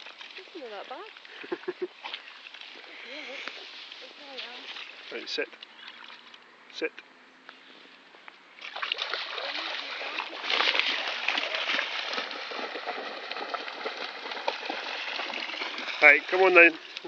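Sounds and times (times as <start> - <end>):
dogs splashing through water: 0.0 - 6.4, 8.6 - 17.0.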